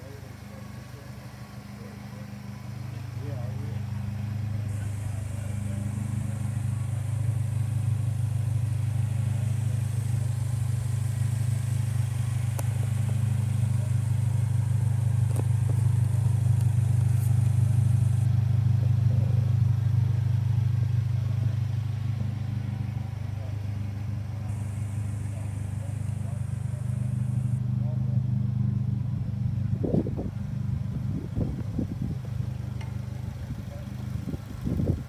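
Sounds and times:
car engine idling: 0.0s - 35.0s.

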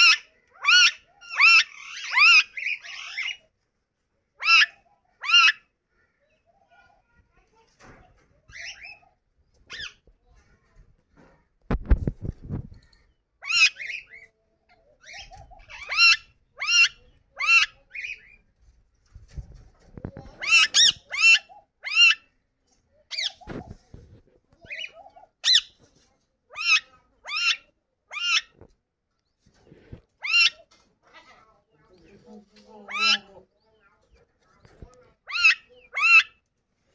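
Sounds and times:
parakeet harsh calls: 0.0s - 3.4s, 20.4s - 22.3s, 24.7s - 25.8s, 30.2s - 30.6s.

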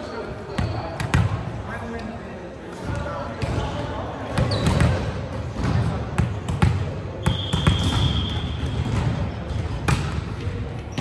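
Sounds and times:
murmur of voices: 0.0s - 11.0s
ball bouncing on wooden gym floor: 4.3s - 11.0s.

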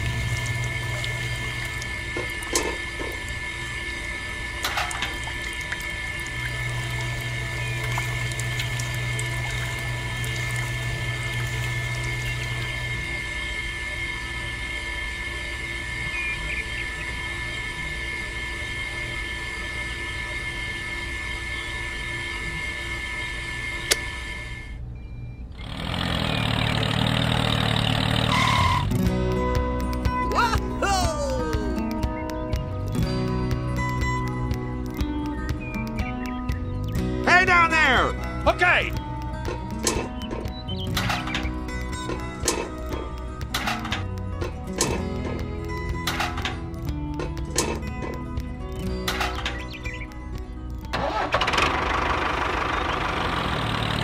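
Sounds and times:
deep hum: 0.0s - 19.2s.

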